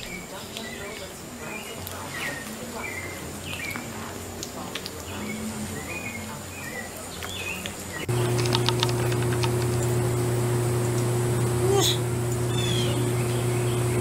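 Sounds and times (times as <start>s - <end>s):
steady low hum: 7.8s - 14.0s.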